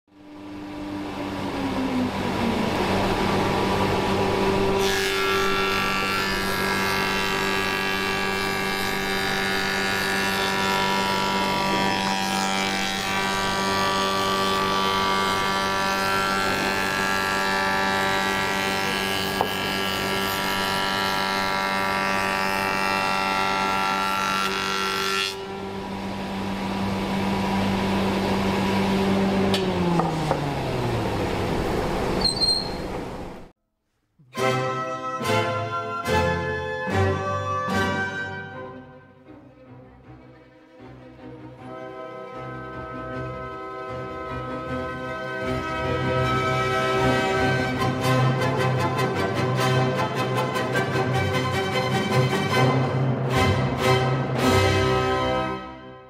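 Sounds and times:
woodworking machine humming: 0.2s - 33.5s, 41.6s - 52.1s
machine cutting a plank: 0.4s - 33.2s.

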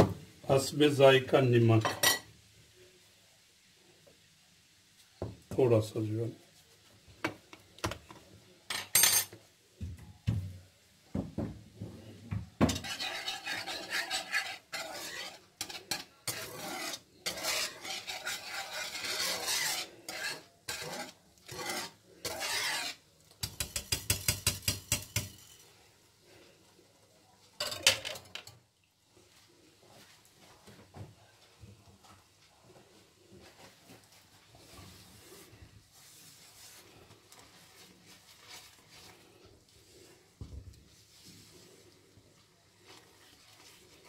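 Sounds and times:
whisk scraping a pan: 11.9s - 27.0s, 31.4s - 44.0s.

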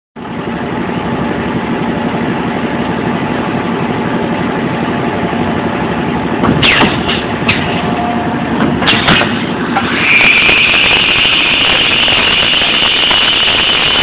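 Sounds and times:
machine mechanical din: 5.6s - 14.0s
high-pitched air hiss: 9.6s - 14.0s.

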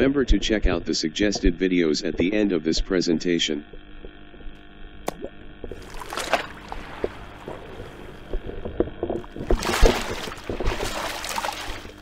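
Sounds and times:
steady hum: 0.0s - 12.0s
water splashing and plopping: 5.1s - 8.4s, 9.2s - 12.0s.

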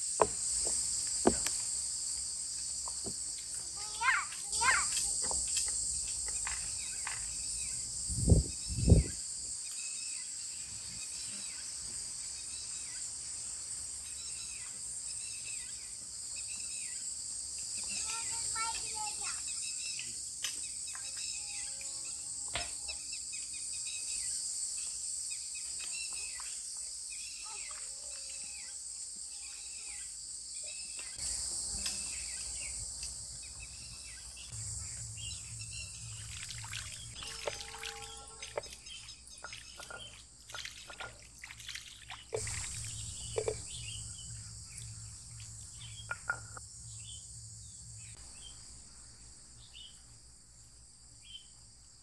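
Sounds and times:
high-pitched insect drone: 17.6s - 40.2s
birds chirping: 33.4s - 48.7s.

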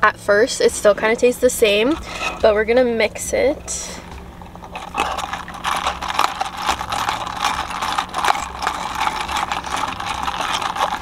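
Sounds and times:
straw rubbing in lid: 1.7s - 2.6s, 3.6s - 11.0s
ice rattling in plastic cup: 4.5s - 11.0s.

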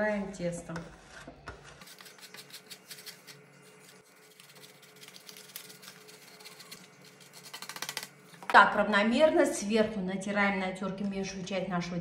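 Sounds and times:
dough scraping on metal grater: 0.4s - 8.1s.

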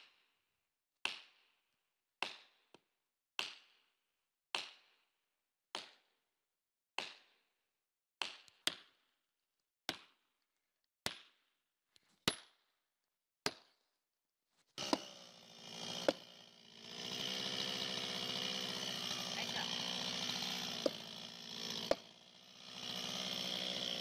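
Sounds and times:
chainsaw running: 14.8s - 24.0s
hammer striking felling wedge: 14.8s - 24.0s.

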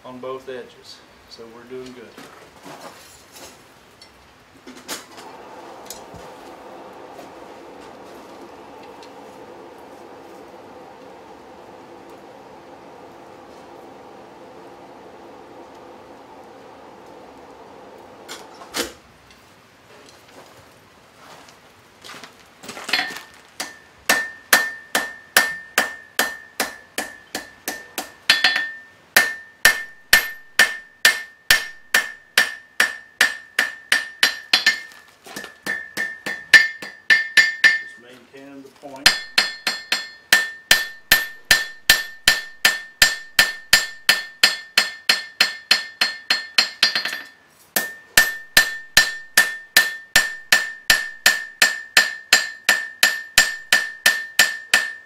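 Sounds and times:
hammer striking metal on anvil: 22.9s - 38.0s, 39.0s - 55.0s.

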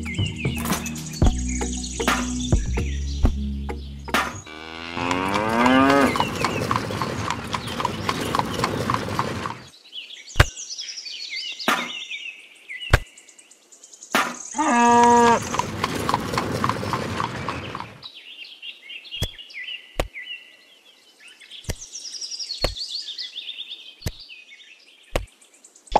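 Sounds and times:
high bird chirps: 0.0s - 9.4s
cow mooing: 4.4s - 6.3s, 14.6s - 15.6s.

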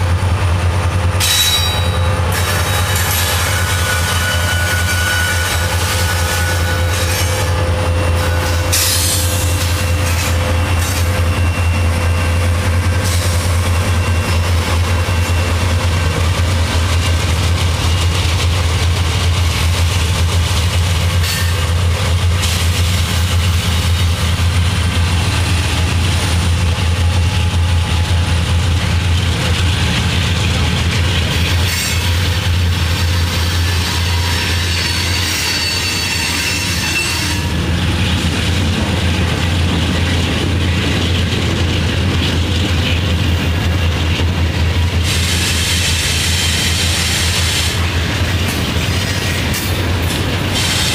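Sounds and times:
diesel locomotives droning: 0.0s - 50.9s.

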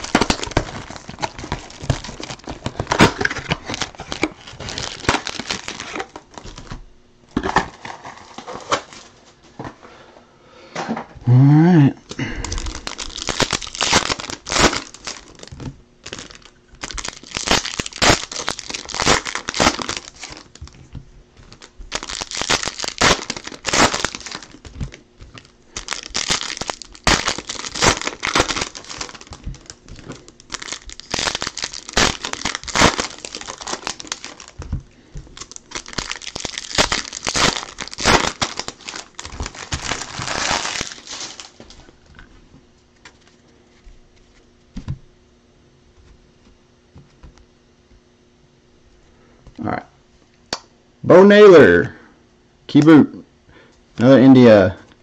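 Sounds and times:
foil wrappers tearing and crinkling: 0.0s - 9.2s, 12.1s - 42.0s.

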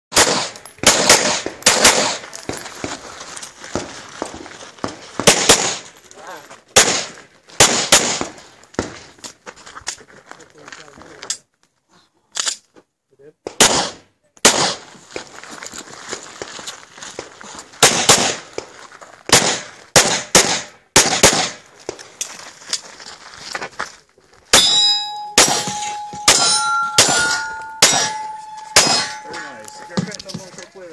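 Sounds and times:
pistol shots: 0.1s - 2.6s, 5.2s - 5.9s, 6.8s - 8.4s, 13.5s - 14.9s, 17.8s - 18.5s, 19.3s - 21.6s, 24.5s - 29.3s
handgun shots with echo: 0.2s - 2.2s
steel target ringing: 24.6s - 30.2s.

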